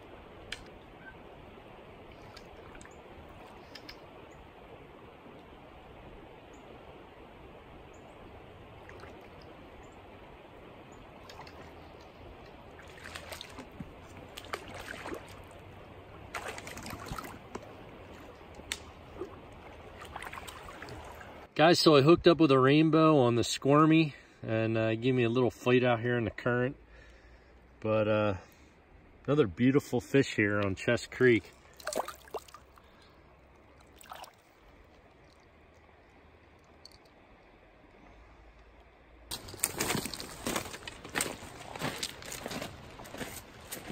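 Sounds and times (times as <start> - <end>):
creek water flowing: 0.0 - 43.9
water splashing: 8.7 - 9.8, 11.0 - 21.5, 31.4 - 33.0, 33.6 - 35.9.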